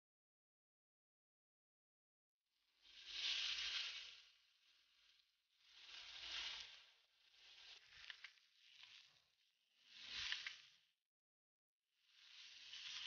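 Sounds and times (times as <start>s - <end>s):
meat sizzling on a griddle: 5.7s - 8.2s, 12.4s - 13.0s.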